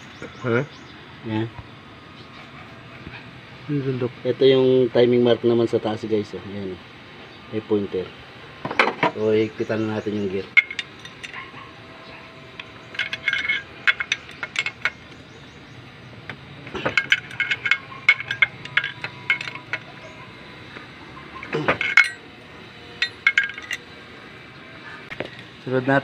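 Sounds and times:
metal clinking and rattling: 10.5 - 11.6, 12.5 - 15.6, 16.7 - 24.0.

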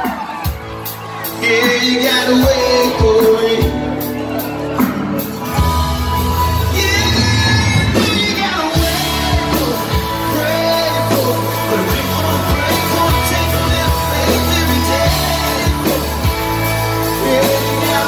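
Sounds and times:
bass: 0.0 - 18.0
drums: 0.0 - 18.0
electric guitar: 0.0 - 18.0
man singing into microphone: 1.2 - 4.2, 6.6 - 18.0.

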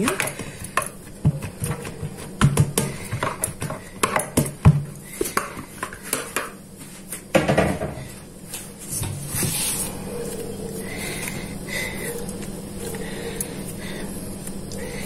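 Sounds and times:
hands knocking in plastic bowl: 0.1 - 6.5.

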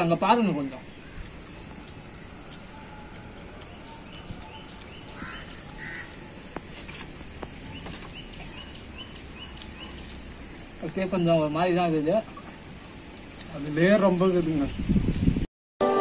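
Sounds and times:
steady background hiss: 0.0 - 15.0
small bird chirping: 0.8 - 6.4, 7.4 - 10.7
crow cawing: 5.1 - 6.4.

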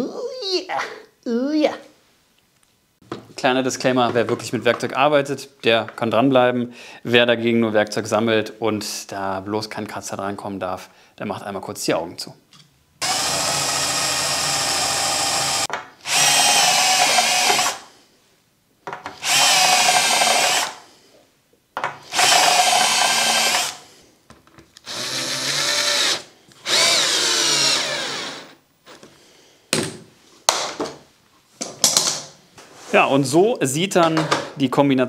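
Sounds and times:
cordless drill drilling metal: 13.0 - 17.9, 19.1 - 20.8, 22.0 - 23.9, 24.8 - 28.6.

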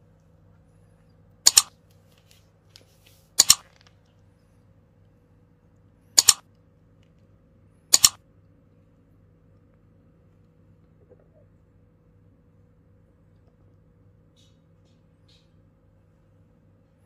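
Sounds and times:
mouse double clicks: 1.5 - 1.7, 3.4 - 3.6, 6.2 - 6.4, 7.9 - 8.2.

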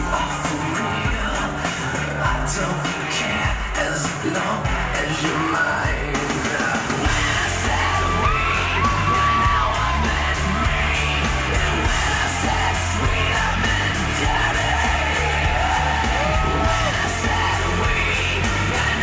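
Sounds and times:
pop music with singing: 0.0 - 19.0
crowd yelling and whooping: 5.0 - 19.0.

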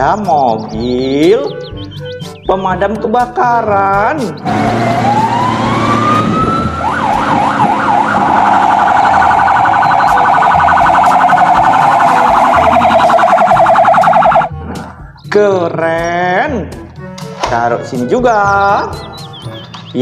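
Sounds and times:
fire engine siren: 4.5 - 14.5.

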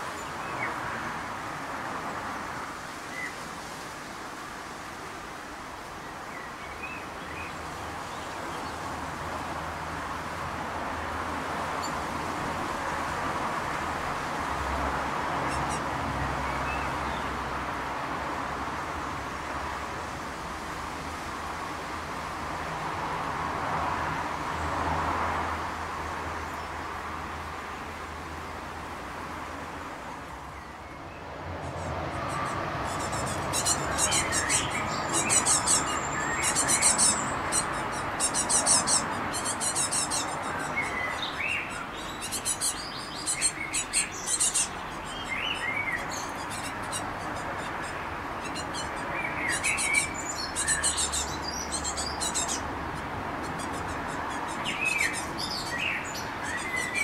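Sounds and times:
fledglings begging calls: 15.3 - 17.3, 31.6 - 57.0.

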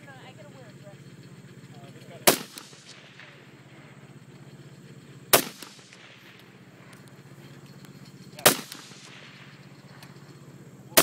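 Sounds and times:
rifle shots with echo: 2.2 - 3.5, 5.3 - 6.5, 8.4 - 9.7.

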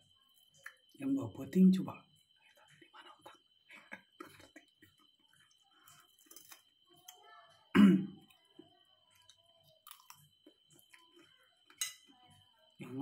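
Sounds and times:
man chewing food: 2.5 - 7.2, 8.2 - 11.8.

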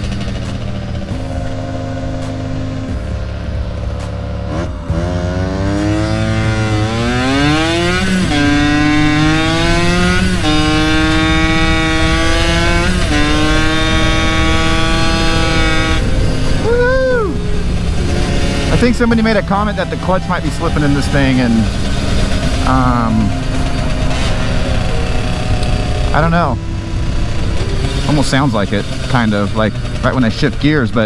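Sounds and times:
two-stroke engine accelerating: 0.0 - 31.0.

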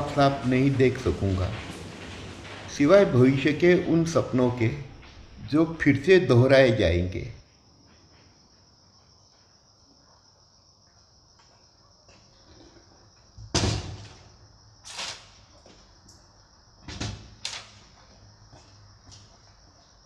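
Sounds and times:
doors banging shut: 0.0 - 5.6, 13.4 - 14.3, 16.8 - 17.8.

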